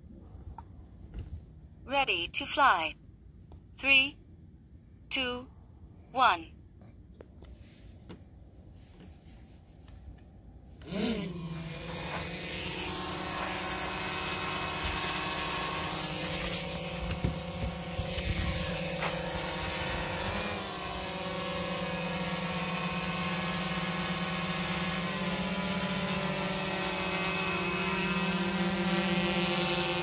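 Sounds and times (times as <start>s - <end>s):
drone propellers buzzing: 10.8s - 30.0s.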